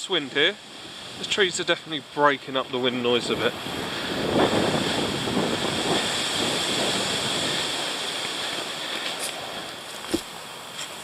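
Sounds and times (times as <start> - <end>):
gusty wind through trees: 0.0 - 11.0
wind buffeting microphone: 0.4 - 11.0
short thump: 10.0 - 10.3.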